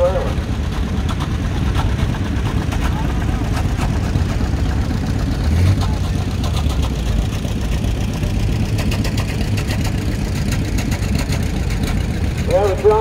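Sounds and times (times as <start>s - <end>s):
tractor engine running: 0.0s - 13.0s.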